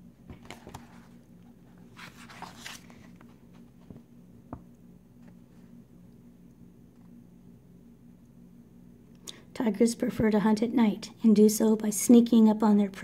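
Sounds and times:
faint steady hum: 0.0s - 13.0s
paper pages turning: 0.3s - 4.0s.

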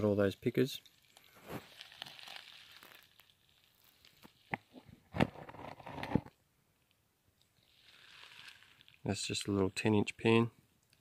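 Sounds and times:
plastic pan rustling: 4.7s - 6.3s.

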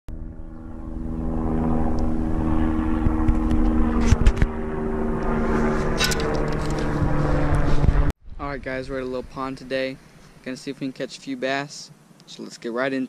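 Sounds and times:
low rumble: 0.1s - 10.2s
mechanical drone with low hum: 0.1s - 10.5s.

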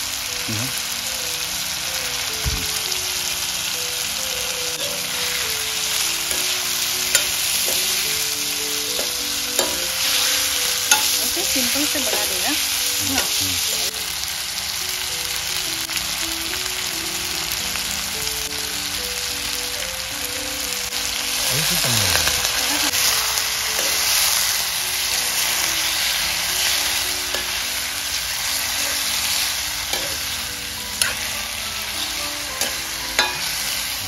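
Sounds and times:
chicken sizzling in hot oil: 0.0s - 34.0s
quiet background music: 0.0s - 34.0s
steel ladle scraping pan: 9.0s - 12.4s, 28.6s - 30.4s, 31.0s - 34.0s.

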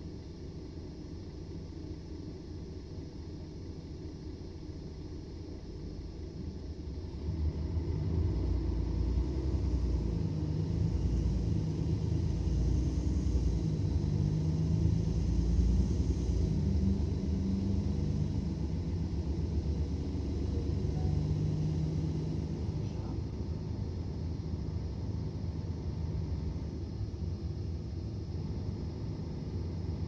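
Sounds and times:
bus engine rumble: 0.0s - 30.0s
humming engine note: 7.1s - 27.2s.

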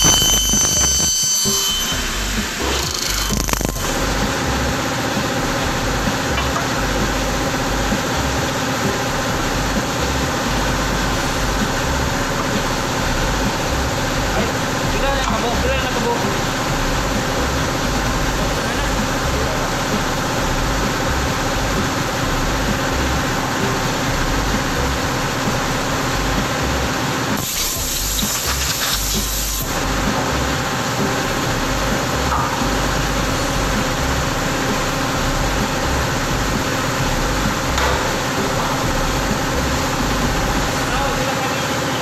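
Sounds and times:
machinery drone: 0.0s - 42.0s
air blow gun hissing: 27.2s - 32.1s.

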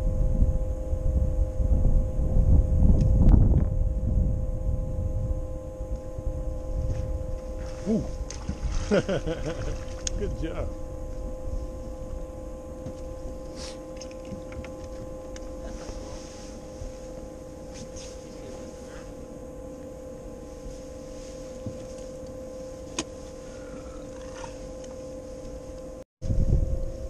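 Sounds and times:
low rumble: 0.0s - 27.0s
electric motor humming: 0.1s - 27.0s.

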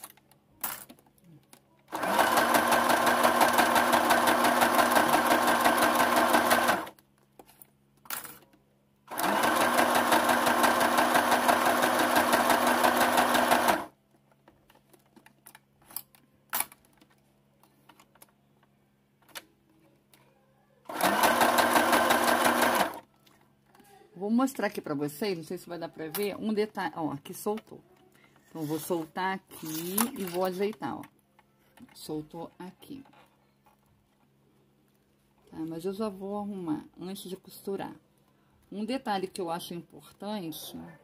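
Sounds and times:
sewing machine stitching: 1.9s - 7.0s, 9.1s - 13.9s, 20.9s - 23.0s.

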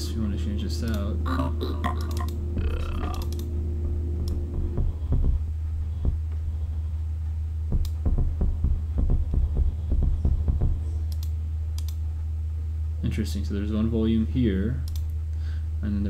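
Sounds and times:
steady low hum: 0.0s - 16.0s
soft low thumps: 1.4s - 11.2s.

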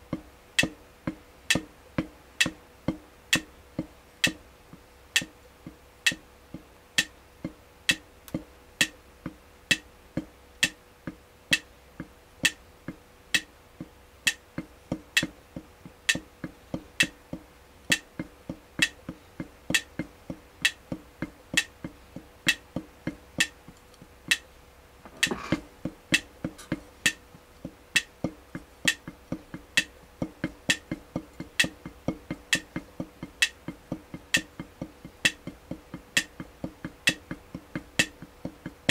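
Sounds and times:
drumsticks tapping on practice pad: 0.0s - 38.9s
metronome clicking: 2.4s - 3.5s, 5.1s - 5.3s, 6.0s - 6.2s, 7.0s - 9.0s, 14.2s - 14.4s, 15.2s - 15.4s, 16.1s - 16.3s, 17.9s - 21.7s, 22.4s - 24.5s, 26.1s - 38.9s.

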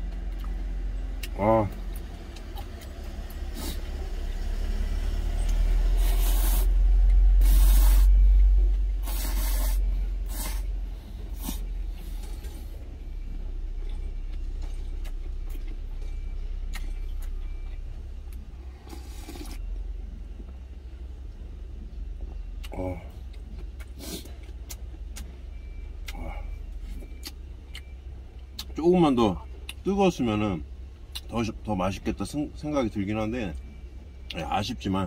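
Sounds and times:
low vehicle engine rumble: 0.0s - 35.0s
noodle slurping: 6.0s - 6.8s, 7.4s - 8.2s, 9.0s - 10.7s, 18.8s - 19.6s.

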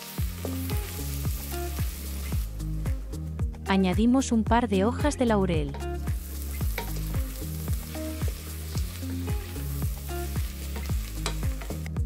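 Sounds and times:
onions sizzling in pot: 0.0s - 3.0s, 5.7s - 12.0s
music with plucked notes: 5.1s - 12.0s.

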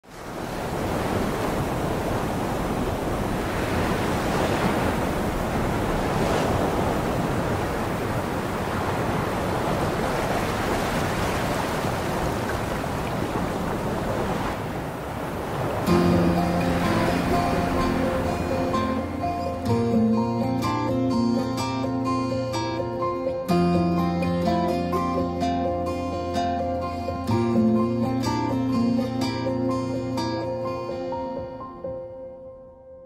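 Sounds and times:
sea waves washing: 0.0s - 23.6s.

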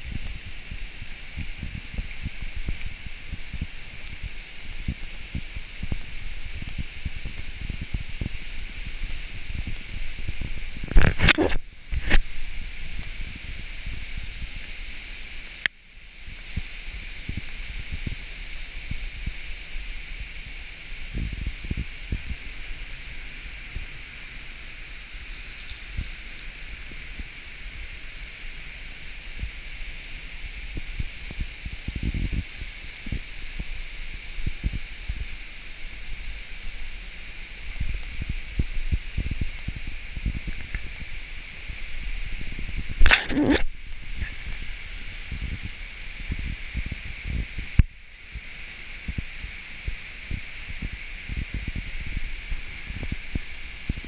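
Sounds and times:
wind buffeting microphone: 0.0s - 54.0s
loud rustle: 16.4s - 47.8s
sharp click: 43.0s - 43.7s.

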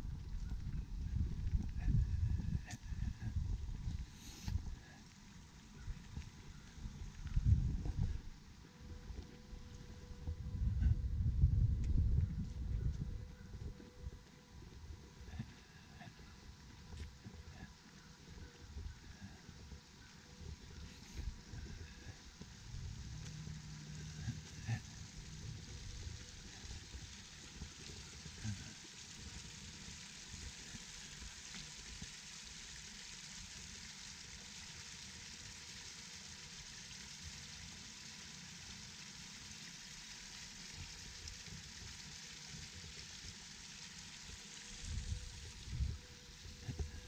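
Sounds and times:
water trickling down stone cascade: 0.0s - 10.4s, 13.6s - 47.0s
low rumbles: 18.6s - 28.8s.

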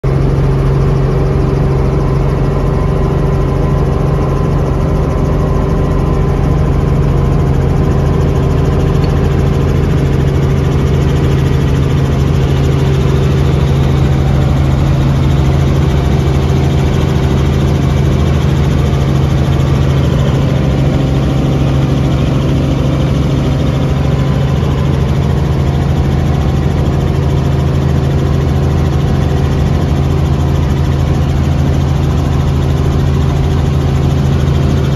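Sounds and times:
helicopter engine and rotor: 0.0s - 34.9s.

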